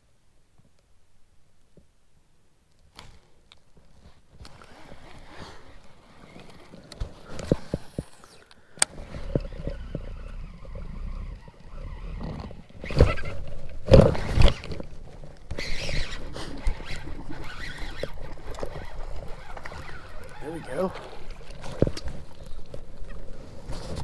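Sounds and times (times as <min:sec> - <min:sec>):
brief rustle: 0:12.1 - 0:24.0.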